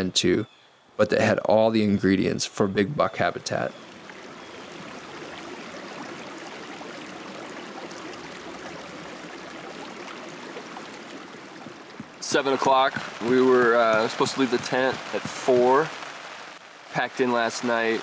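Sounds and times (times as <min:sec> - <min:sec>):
steady rain hiss: 0:02.4 - 0:18.0
rain drop ticks: 0:08.7 - 0:18.0.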